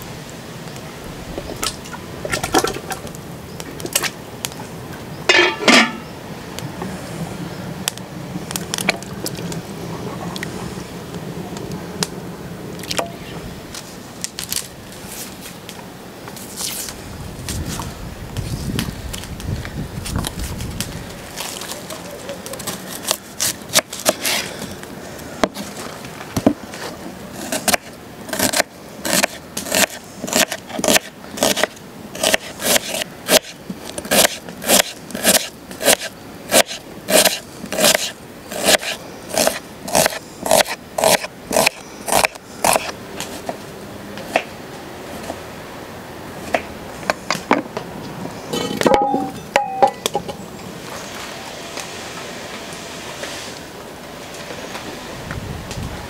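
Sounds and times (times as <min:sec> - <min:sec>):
knife scraping onion: 0:27.4 - 0:43.5.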